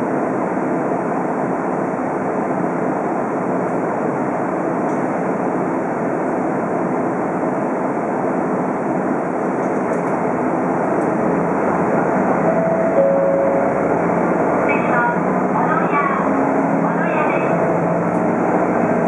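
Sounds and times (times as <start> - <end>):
diesel engine idling rumble: 10.2 - 17.6.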